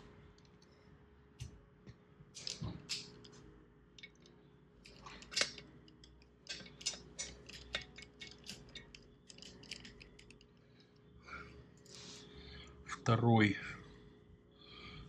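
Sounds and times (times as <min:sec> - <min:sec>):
metal clinks: 0:04.9 - 0:10.4.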